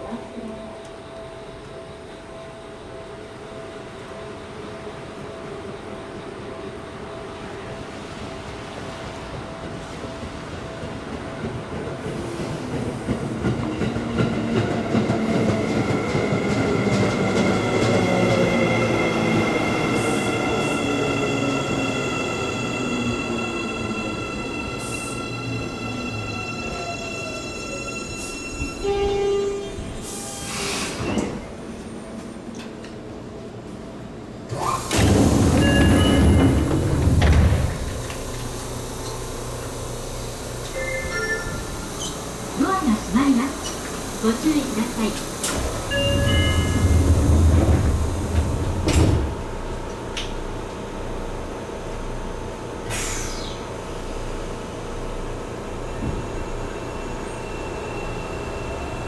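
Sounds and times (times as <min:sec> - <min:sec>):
train hum: 0:00.0 - 0:59.0
sliding train doors opening: 0:08.4 - 0:33.1, 0:34.4 - 0:50.8.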